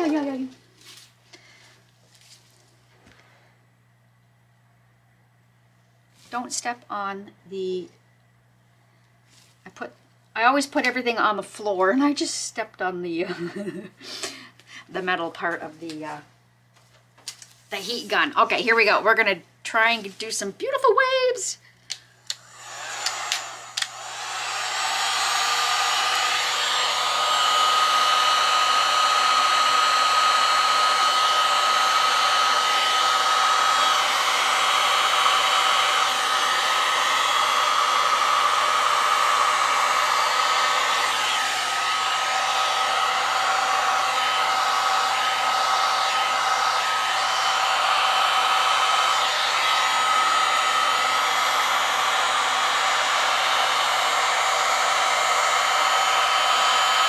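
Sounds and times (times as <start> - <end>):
heat gun blowing air: 22.2 - 57.0.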